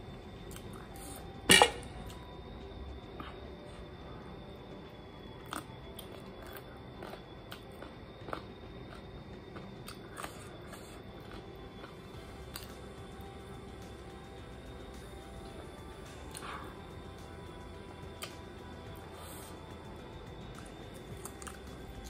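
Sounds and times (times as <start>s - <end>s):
faint steady hum: 0.0s - 22.0s
chewing chicken: 5.4s - 13.0s, 20.5s - 22.0s.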